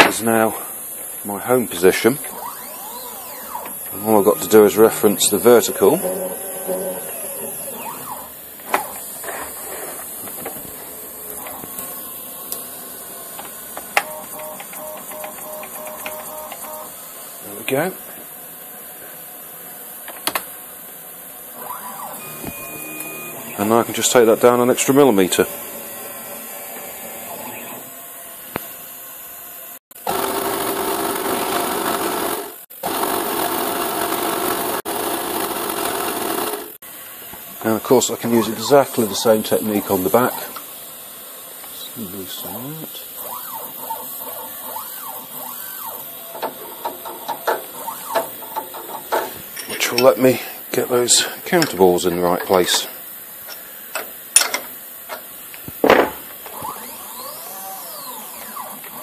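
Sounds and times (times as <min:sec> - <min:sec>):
stepper motors high hiss: 0:00.0 - 0:18.1, 0:37.2 - 0:54.0
milling machine cutting plastic: 0:01.9 - 0:12.6
stepper motor pulsing: 0:02.2 - 0:12.4.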